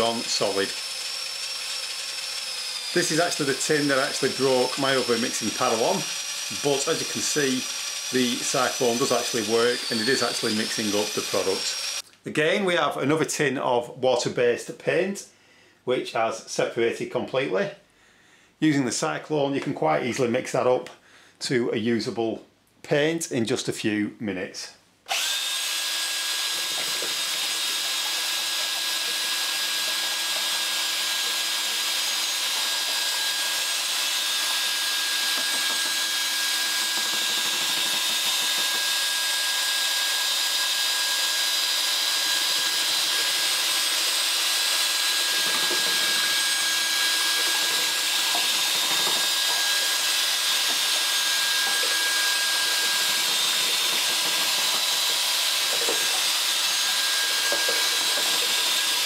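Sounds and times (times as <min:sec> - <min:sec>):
electric drill mixing paint: 0:00.0 - 0:12.0, 0:25.1 - 0:59.0.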